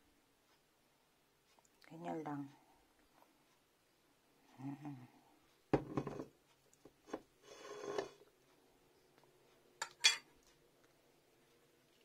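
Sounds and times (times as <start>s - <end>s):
cutlery scraping bowl: 5.8s - 6.3s, 7.1s - 8.2s, 9.8s - 10.3s
cutlery tapping ceramic bowl: 9.8s - 10.3s.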